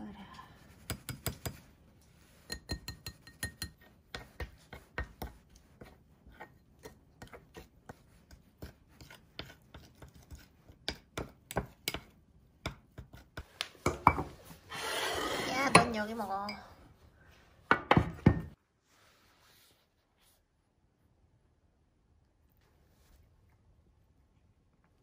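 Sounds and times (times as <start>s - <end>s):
spoon tapping ceramic bowl: 2.5s - 4.3s.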